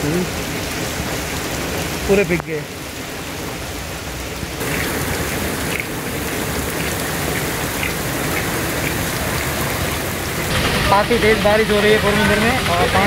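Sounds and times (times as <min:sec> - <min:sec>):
heavy rain: 0:00.0 - 0:13.0.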